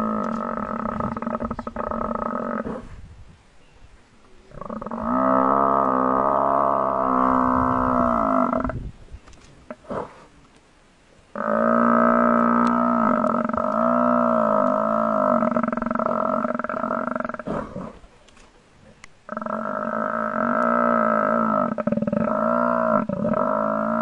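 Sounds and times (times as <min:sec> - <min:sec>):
buffalo bellowing in distress: 0:04.6 - 0:08.8.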